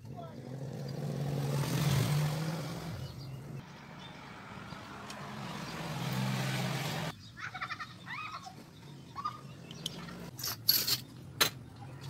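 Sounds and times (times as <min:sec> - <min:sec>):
vehicle engine passing: 0:00.0 - 0:07.1.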